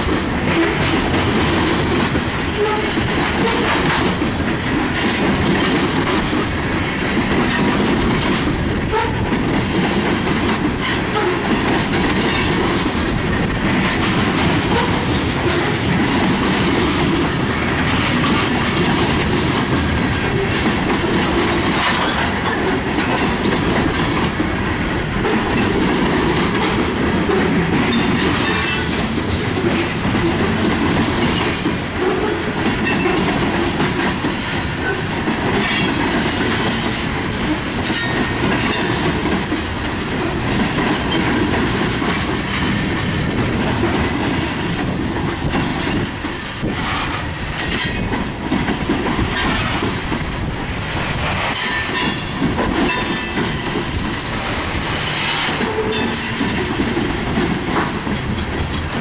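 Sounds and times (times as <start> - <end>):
freight train wheels rumbling: 0.0 - 59.0.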